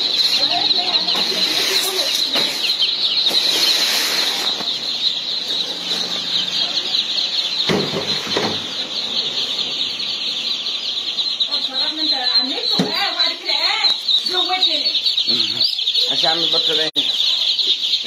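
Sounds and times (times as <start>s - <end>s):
ducklings and chicks peeping: 0.0s - 18.0s
knocks: 7.6s - 8.7s.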